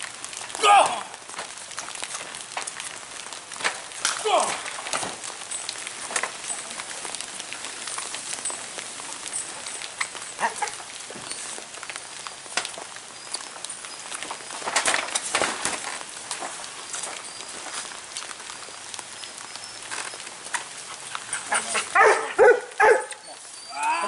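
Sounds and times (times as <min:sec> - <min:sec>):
outdoor ambience: 0:00.0 - 0:24.0
scuffs and knocks on a wet tarp: 0:14.2 - 0:18.4.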